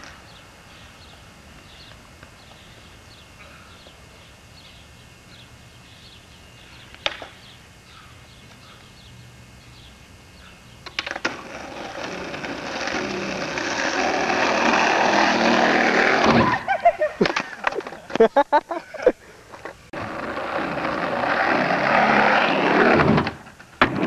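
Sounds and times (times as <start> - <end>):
skateboard wheels rolling: 10.8 - 18.2, 19.5 - 24.0
skateboard clacking on asphalt: 10.9 - 16.2.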